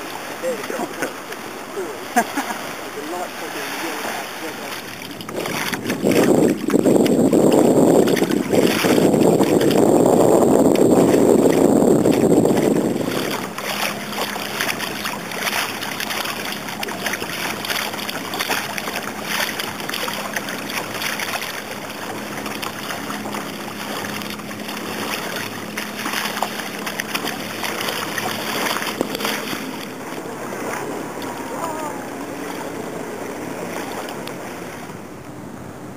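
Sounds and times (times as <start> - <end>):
faint steady hum: 0.0 - 35.9
water splashing around kayaks: 0.0 - 35.9
wind on microphone: 4.0 - 35.1.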